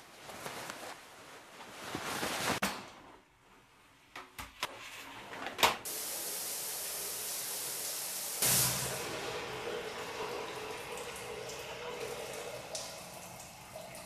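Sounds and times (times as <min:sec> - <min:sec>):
rustling: 0:00.0 - 0:02.7
shower spray hissing: 0:05.9 - 0:13.6.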